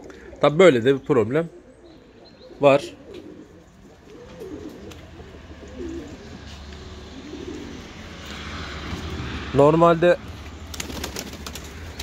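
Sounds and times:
pigeons cooing: 0.0 - 9.5.

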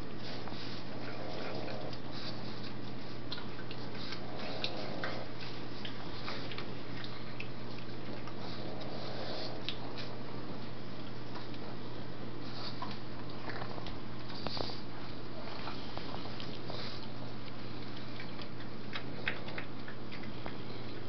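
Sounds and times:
dog gnawing on a chew: 0.0 - 21.0
steady low hum: 0.0 - 21.0
teeth clicking on a chew: 1.3 - 10.1, 15.6 - 21.0.

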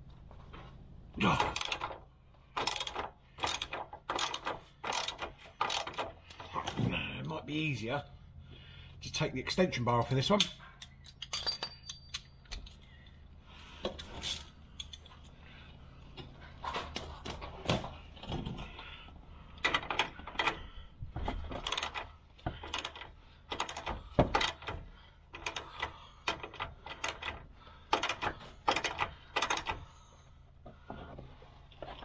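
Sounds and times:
socket ratchet clicking: 1.6 - 1.9, 2.6 - 6.4
metal clinks of tools: 10.3 - 12.9.

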